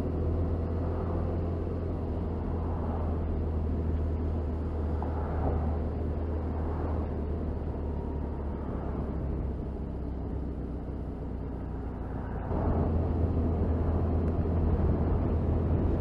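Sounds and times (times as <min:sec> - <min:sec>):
wind noise: 0:12.2 - 0:16.0.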